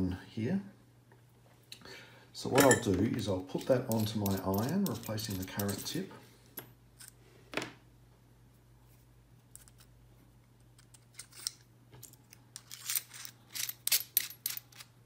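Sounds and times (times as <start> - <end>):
metallic clicks and scrapes: 10.6 - 15.0.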